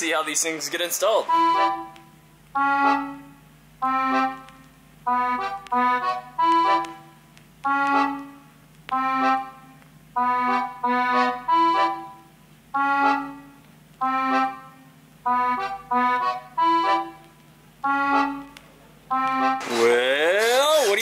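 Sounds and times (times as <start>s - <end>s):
short melodic phrases: 0.0s - 4.5s.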